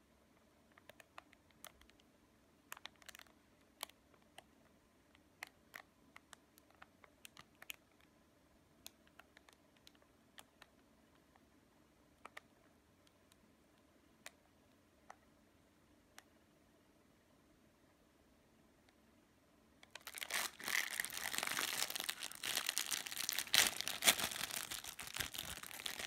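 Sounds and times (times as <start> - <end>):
plastic wrapper crinkling: 2.8 - 3.9, 19.9 - 26.0.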